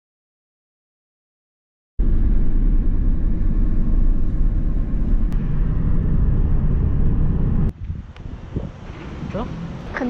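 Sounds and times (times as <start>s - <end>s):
road and wind noise inside car: 2.0s - 10.0s.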